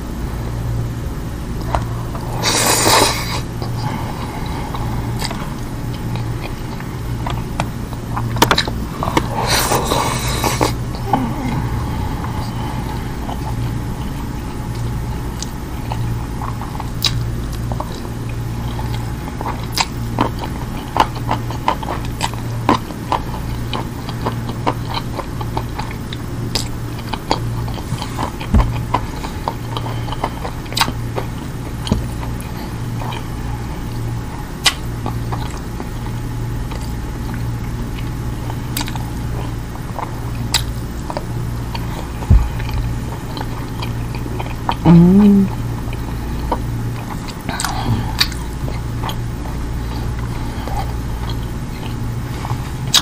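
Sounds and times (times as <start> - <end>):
low hum: 0.0 - 19.6, 39.2 - 53.0
close chewing: 1.5 - 44.8, 45.8 - 53.0.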